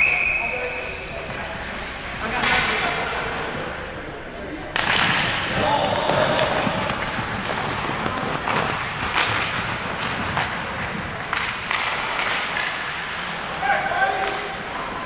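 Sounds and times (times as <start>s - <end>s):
hockey sticks and puck knocking: 2.2s - 3.1s, 4.7s - 15.0s.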